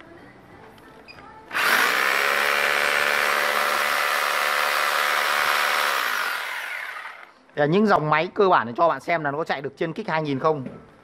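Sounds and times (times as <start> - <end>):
rotary hammer drill motor whine: 1.5 - 7.3.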